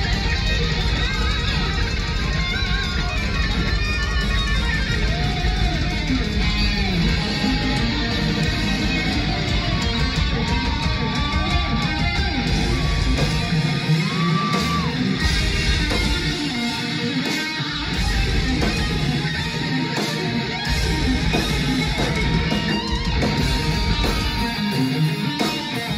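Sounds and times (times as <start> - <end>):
live rock band playing: 0.0 - 25.9.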